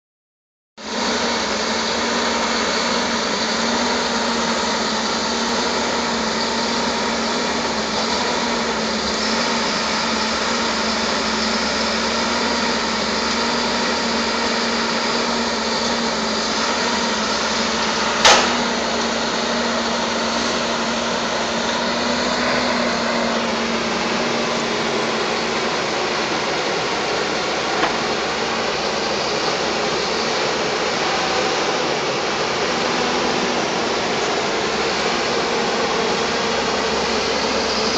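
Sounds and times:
diesel engine humming: 0.8s - 37.9s
sharp knock: 18.2s - 18.8s.

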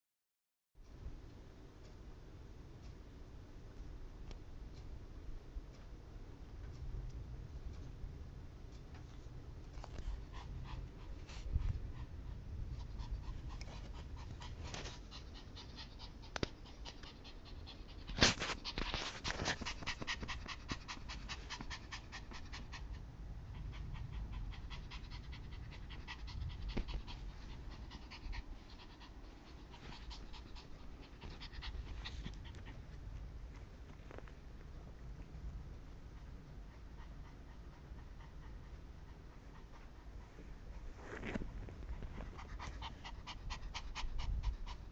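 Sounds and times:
dog panting: 9.0s - 34.0s, 35.0s - 44.9s.

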